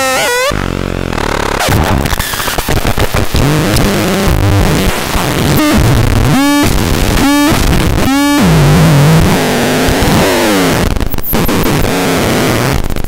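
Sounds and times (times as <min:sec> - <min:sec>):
short squealing tones: 0:00.0 - 0:00.6
gritty distorted noise: 0:00.0 - 0:13.0.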